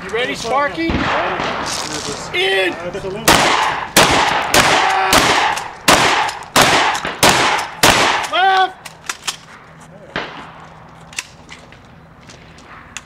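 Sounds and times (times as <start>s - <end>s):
shotgun shots: 0.8s - 2.0s, 3.2s - 8.3s.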